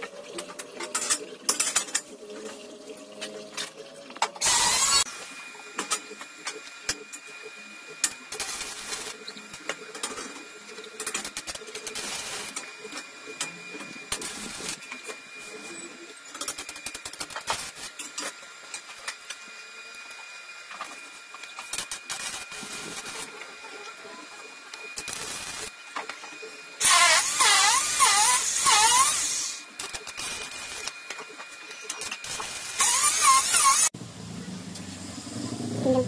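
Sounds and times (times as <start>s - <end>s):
welding arc crackling: 4.4s - 5.1s, 8.0s - 10.2s, 10.8s - 12.7s, 14.0s - 15.5s, 16.3s - 18.0s, 21.5s - 23.4s, 24.9s - 25.7s, 26.8s - 31.0s, 31.8s - 34.0s.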